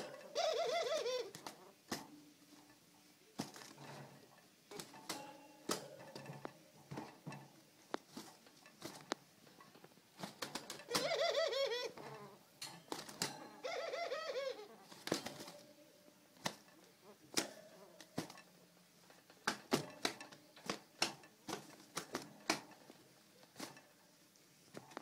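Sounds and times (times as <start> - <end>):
dove cooing: 0.0 - 2.5, 10.7 - 12.5, 13.4 - 18.4
wings beating against cage: 0.0 - 14.1, 14.7 - 24.0.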